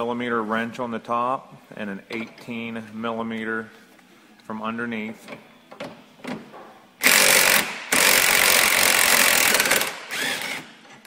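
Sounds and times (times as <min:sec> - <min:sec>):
impact driver hammering on a nut: 0:07.0 - 0:10.6
impact driver whine: 0:07.0 - 0:11.0.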